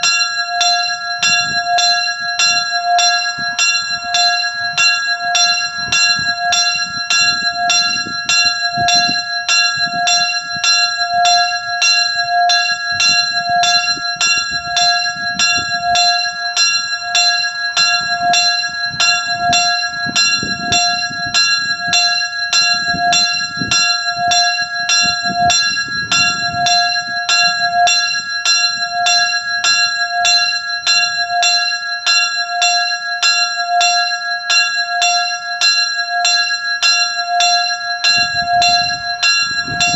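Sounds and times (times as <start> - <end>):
small church bell ringing: 0.0 - 39.9.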